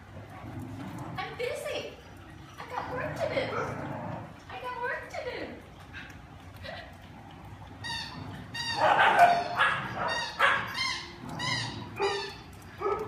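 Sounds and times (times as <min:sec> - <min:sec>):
dog barking: 0:08.8 - 0:10.7, 0:12.8 - 0:13.0.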